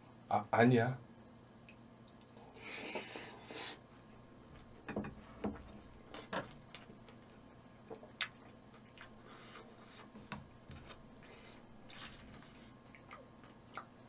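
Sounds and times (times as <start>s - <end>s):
chewing with light clicks: 1.4s - 2.4s, 12.9s - 14.0s
hissy mouthful of food: 2.5s - 3.8s.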